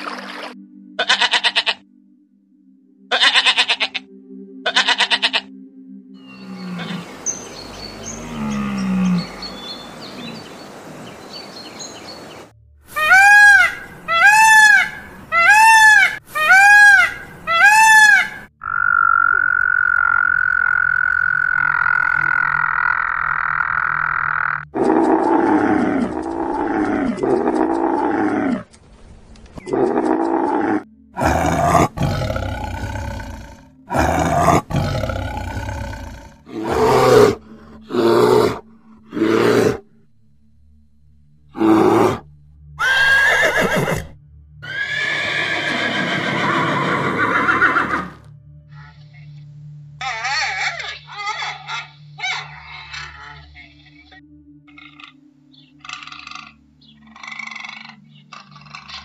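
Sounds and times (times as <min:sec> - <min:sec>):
loud harsh animal calls: 0:01.0 - 0:01.8, 0:03.1 - 0:04.0, 0:04.6 - 0:05.5, 0:12.9 - 0:28.6, 0:41.5 - 0:48.2, 0:50.0 - 0:53.6, 0:55.8 - 0:59.0
short arching animal calls: 0:01.0 - 0:01.8.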